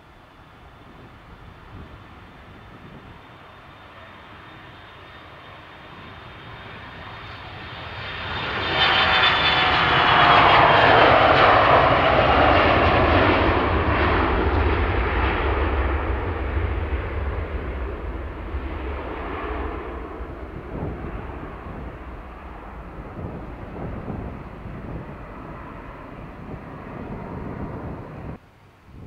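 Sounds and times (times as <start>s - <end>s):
jet engines roaring on takeoff: 0.0s - 28.4s.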